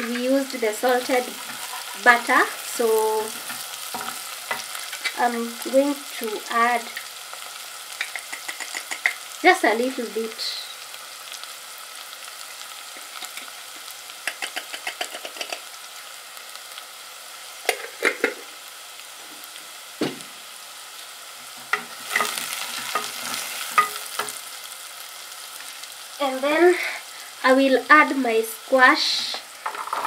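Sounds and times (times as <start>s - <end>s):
onions sizzling in butter: 0.0s - 30.0s
wooden spatula scraping pot: 1.2s - 2.3s.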